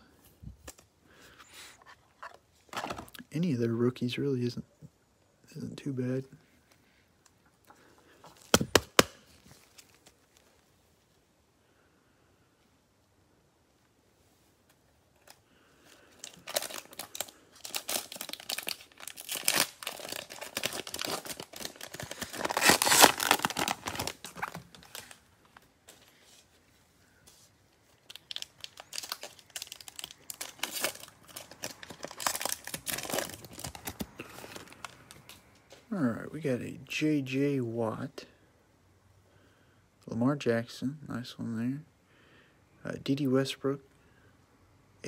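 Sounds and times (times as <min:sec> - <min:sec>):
plastic wrapper crinkling and tearing: 0:08.4 - 0:10.6, 0:15.1 - 0:26.1, 0:27.8 - 0:35.4.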